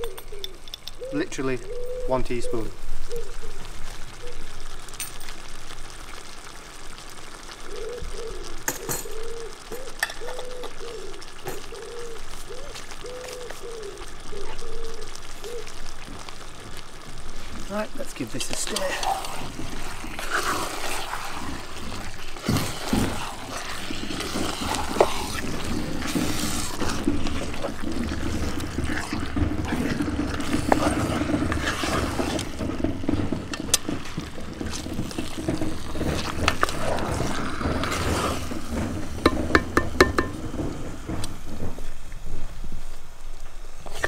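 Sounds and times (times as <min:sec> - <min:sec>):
chicken sizzling in a pot: 0:00.0 - 0:44.0
wooden spatula scraping a pot: 0:18.3 - 0:42.1.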